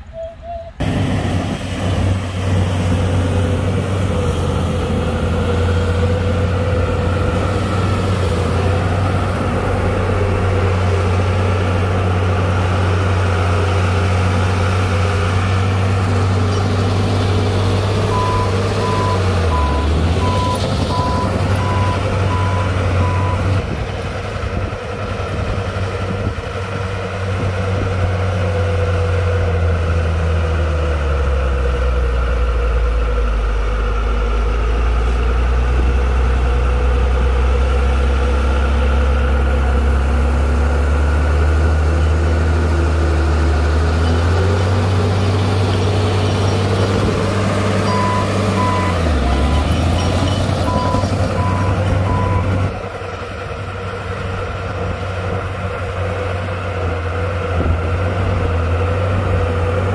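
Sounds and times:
heavy diesel engine running: 0.0s - 59.9s
reversing alarm beeping: 18.1s - 23.4s, 47.8s - 52.6s.

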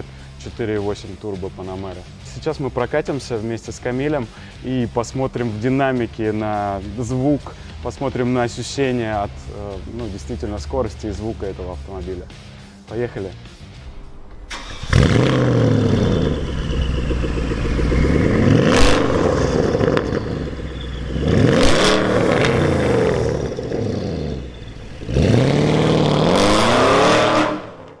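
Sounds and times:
car engine revving: 13.5s - 28.0s
sharp exhaust crack: 13.8s - 28.0s.

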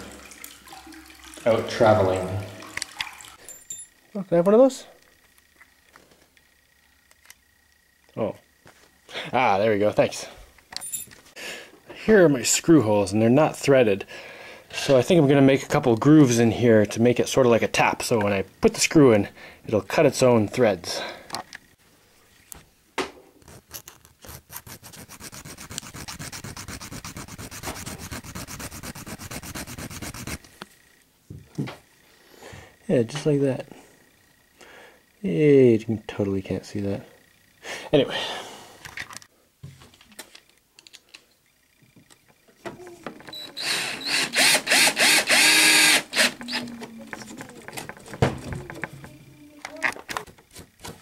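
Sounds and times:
file scraping steel screw: 23.4s - 30.4s
cordless drill driving screw: 43.3s - 46.7s.

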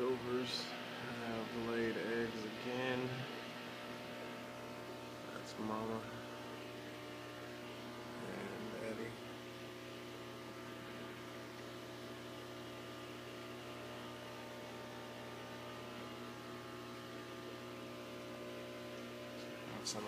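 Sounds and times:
electrical hum of aquarium equipment: 0.0s - 20.0s.

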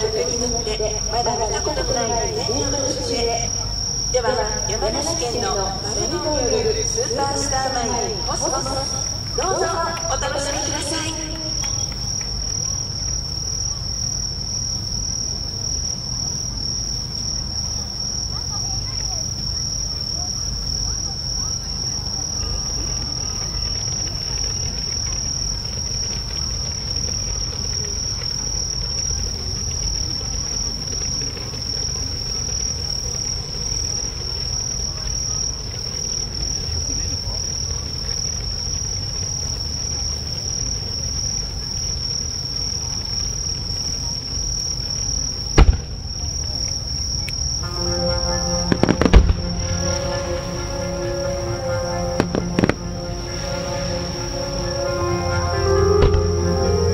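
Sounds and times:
crickets chirring: 0.0s - 56.9s.

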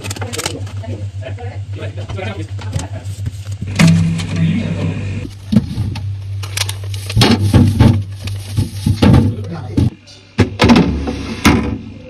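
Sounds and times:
steady low hum: 0.0s - 12.0s
plastic knocks and clatters: 7.1s - 10.9s.

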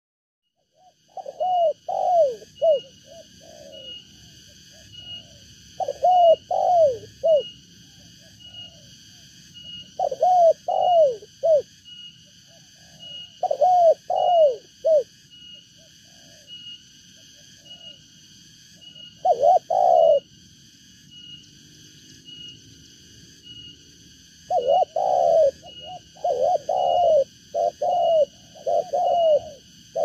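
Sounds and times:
dove cooing: 0.6s - 11.7s, 12.3s - 15.1s, 15.8s - 18.0s, 18.8s - 20.3s, 24.5s - 30.0s.

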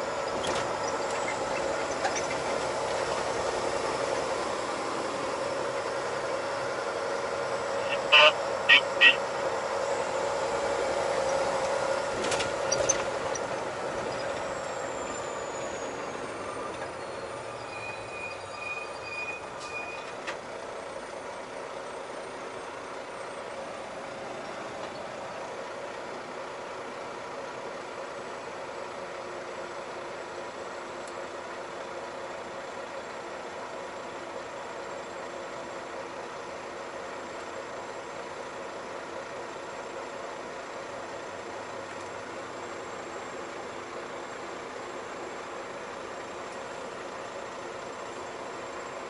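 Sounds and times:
diesel truck engine idling: 0.0s - 49.0s
even beeps: 7.8s - 9.3s.

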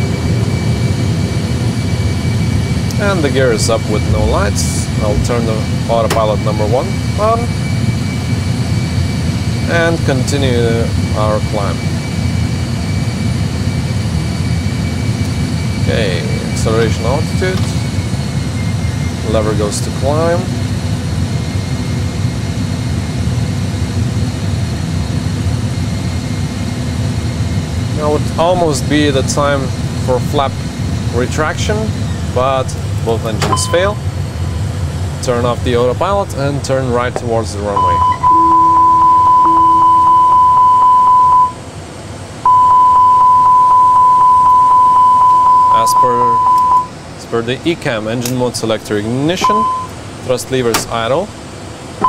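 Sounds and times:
jet engine and airflow rumble: 0.0s - 52.0s
low alarm tone: 2.2s - 7.8s, 33.4s - 34.6s, 37.7s - 41.7s, 42.4s - 47.0s, 49.4s - 50.0s
cockpit warning alarm beeping: 33.4s - 34.0s, 37.7s - 41.6s, 42.4s - 47.0s, 49.4s - 50.0s.

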